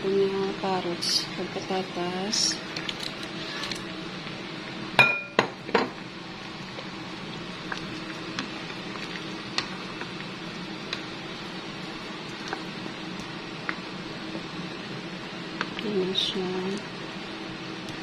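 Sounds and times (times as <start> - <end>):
steady low hum: 0.0 - 18.0
stew being stirred: 6.4 - 16.9.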